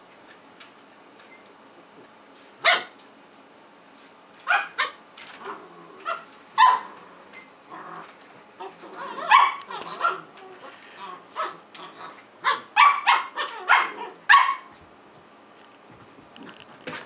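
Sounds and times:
puppies barking and yipping: 6.1s - 7.0s, 8.6s - 14.7s.

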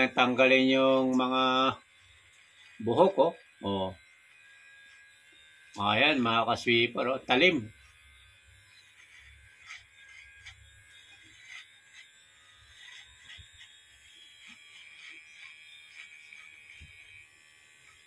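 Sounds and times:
hair clipper running: 0.0s - 18.0s
clipper blade ticking on hair: 4.0s - 6.4s, 7.4s - 17.2s.

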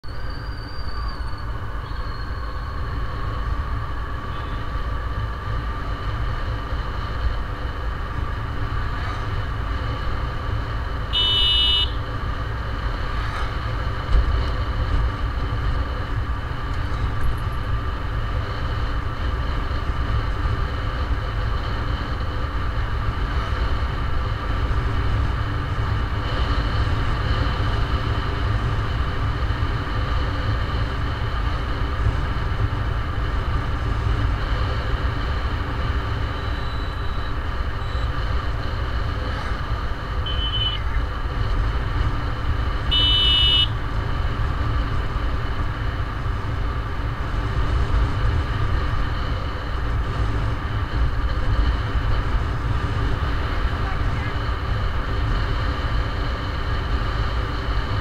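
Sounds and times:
vehicle driving on road: 0.0s - 58.0s
wind: 0.0s - 58.0s
car horn beep: 11.1s - 12.0s, 40.2s - 40.8s, 42.9s - 43.8s.

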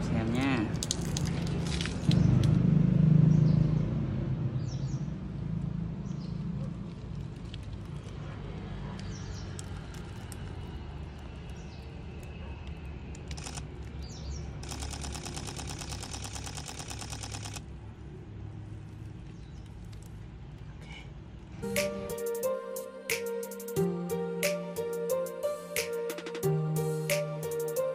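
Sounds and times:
camera shutter burst: 13.3s - 13.7s, 14.6s - 17.6s.

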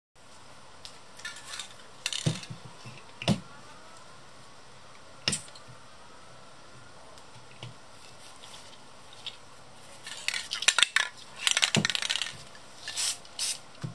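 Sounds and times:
hard objects clinking and knocking: 1.2s - 2.6s, 10.1s - 12.4s.

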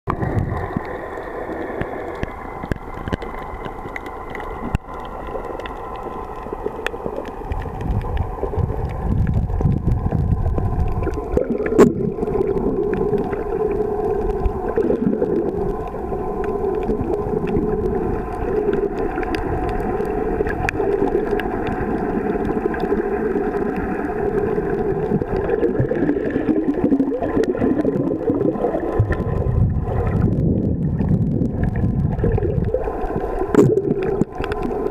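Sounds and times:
rumble of moving water: 0.0s - 34.9s
faint clicks: 0.1s - 9.8s, 14.2s - 23.9s, 32.6s - 34.9s
underwater drone of held tones: 0.1s - 34.9s.

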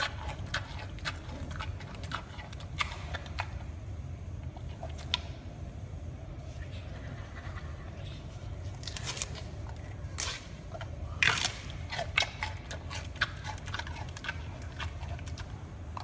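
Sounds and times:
panda chewing bamboo: 0.0s - 3.8s, 8.8s - 16.0s.

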